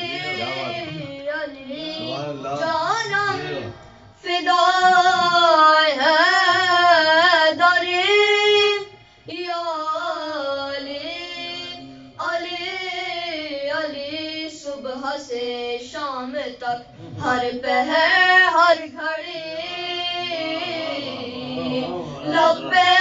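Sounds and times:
boys singing into a microphone: 0.0s - 23.0s.

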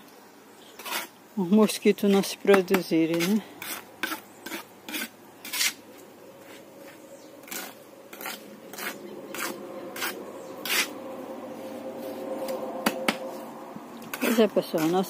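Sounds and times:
trowel scraping mortar: 0.8s - 1.2s, 2.0s - 5.8s, 6.4s - 10.9s, 14.1s - 15.0s.

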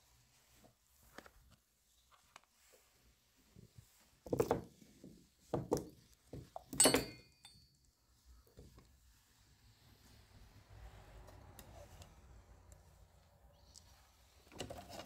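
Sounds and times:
high metallic ring: 6.8s - 7.8s.

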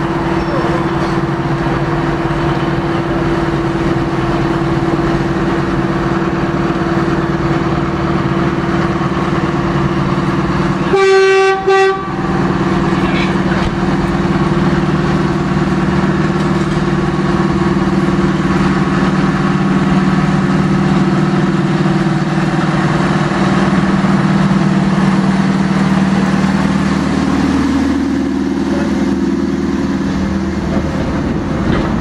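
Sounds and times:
diesel locomotive engine hum: 0.0s - 32.0s
train horn toot: 10.8s - 12.6s.

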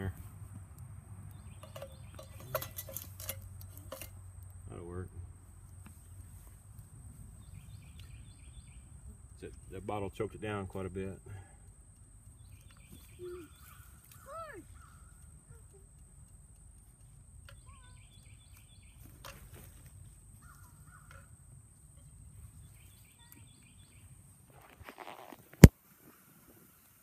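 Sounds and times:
birds calling: 1.2s - 4.1s, 7.2s - 9.9s, 12.0s - 16.2s, 17.0s - 19.7s, 20.3s - 24.4s
camera handling rustle: 24.5s - 25.8s.

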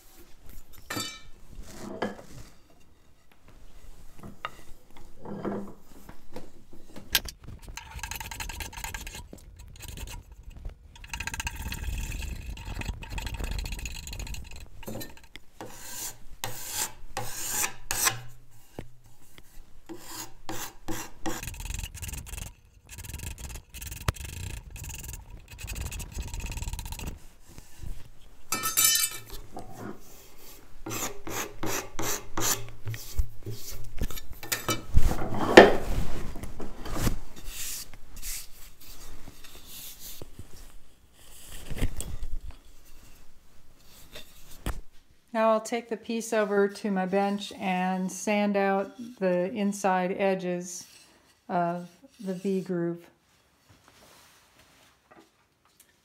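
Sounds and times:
hand rasp scraping wood: 7.4s - 18.8s, 19.4s - 27.8s, 29.9s - 34.3s.

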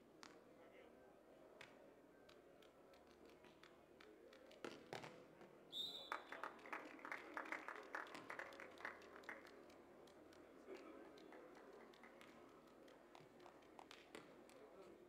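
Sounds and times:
spectators clapping: 6.1s - 14.9s.

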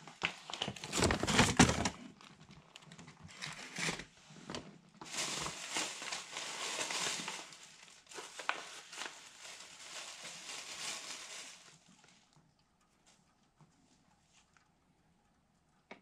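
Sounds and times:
bags crinkling and rustling: 0.2s - 12.1s.

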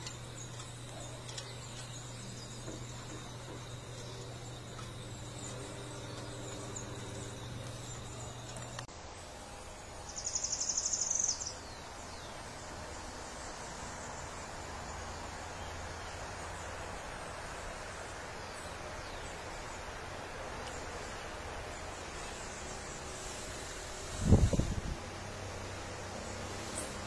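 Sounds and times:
faint insects: 0.0s - 27.0s
forest background hiss: 0.0s - 27.0s.

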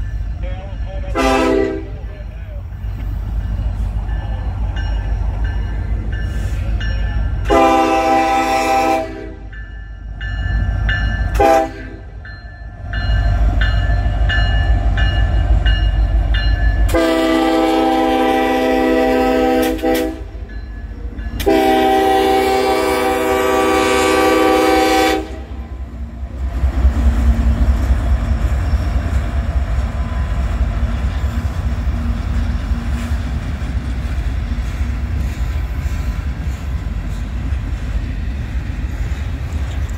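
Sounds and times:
locomotive rumble: 0.0s - 39.9s
locomotive horn blasts: 1.1s - 2.2s, 7.4s - 9.5s, 11.3s - 12.1s, 16.9s - 20.4s, 21.4s - 25.8s.

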